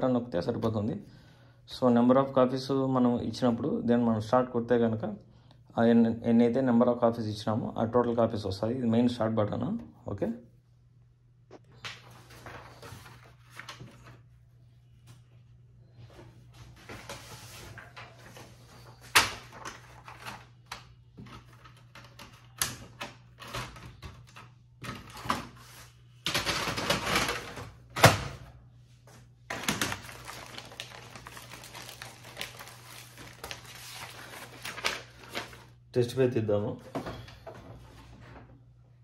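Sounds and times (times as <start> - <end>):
paper sheets rustling: 11.8 - 14.4, 16.0 - 22.5, 29.5 - 35.8.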